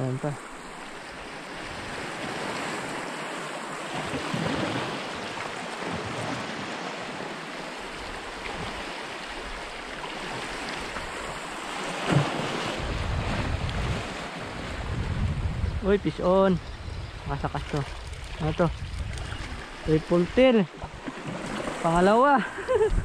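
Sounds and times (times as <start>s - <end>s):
wind on microphone: 12.1s - 23.0s.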